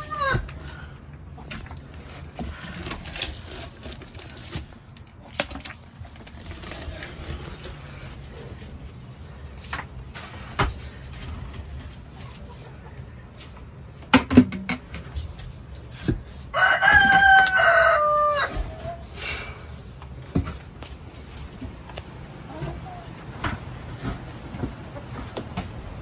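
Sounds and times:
rooster crowing: 0.0 - 0.5, 16.5 - 19.0.

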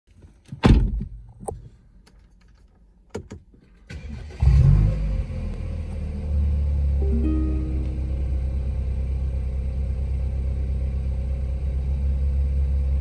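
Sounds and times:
car engine starting and idling: 3.8 - 13.0.

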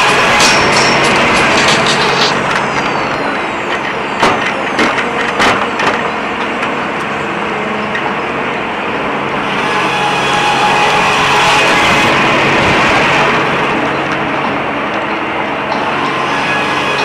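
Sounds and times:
sawmill carriage running: 0.0 - 17.0.

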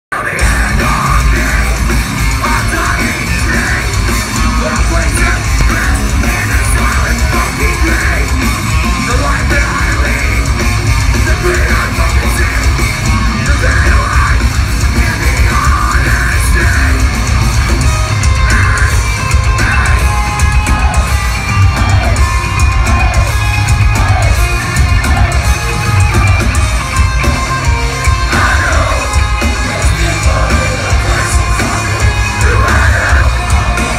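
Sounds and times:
distorted guitars: 0.1 - 33.9
pounding drums: 0.4 - 33.9
screamed vocals: 29.8 - 33.9.

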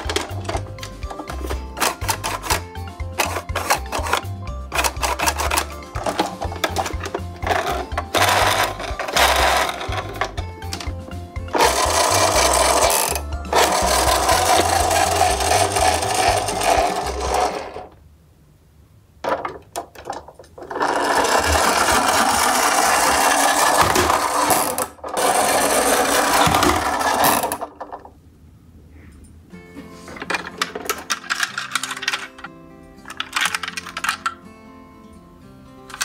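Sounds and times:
toy truck wheels whirring and rattling: 0.0 - 17.9, 20.6 - 28.1, 33.1 - 34.3.

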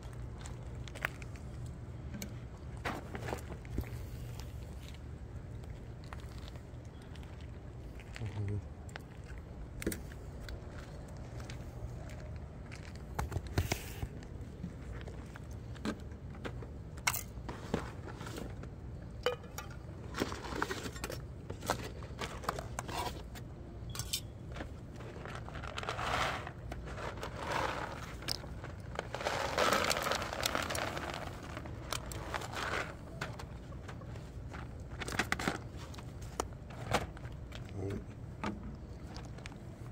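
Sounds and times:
cardboard and packaging rustling: 0.1 - 5.2, 12.1 - 18.8, 19.8 - 23.5, 24.4 - 39.9.

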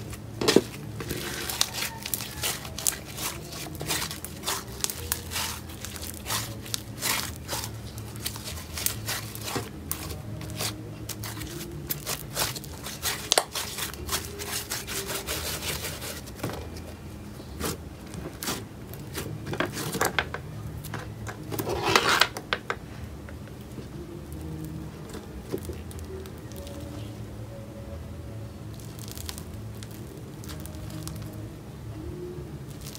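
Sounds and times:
slime crackling and tearing: 0.0 - 16.4, 17.6 - 20.0, 25.5 - 27.1, 28.7 - 31.4, 32.7 - 32.9.

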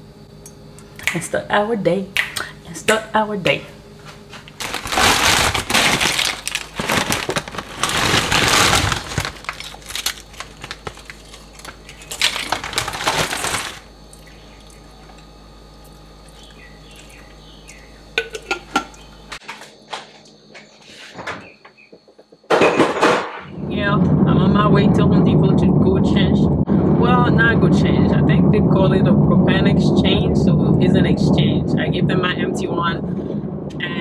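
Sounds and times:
chips crackling on ceramic plate: 4.6 - 13.8.

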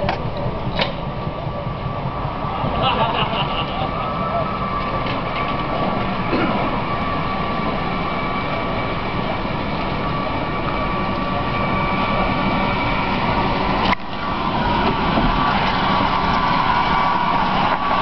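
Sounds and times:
electric motor whine: 4.5 - 18.0.

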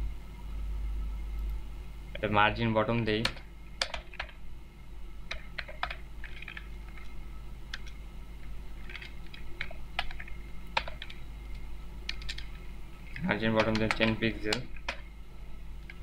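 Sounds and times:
steady low hum: 0.0 - 16.0
computer keyboard typing: 3.2 - 4.4, 5.3 - 7.1, 7.7 - 8.0, 8.8 - 15.1.

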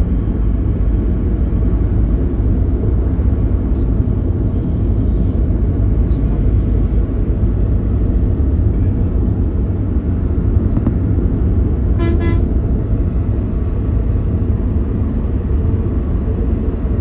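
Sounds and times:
low road rumble: 0.0 - 17.0
vehicle horn beeps: 12.0 - 12.6.

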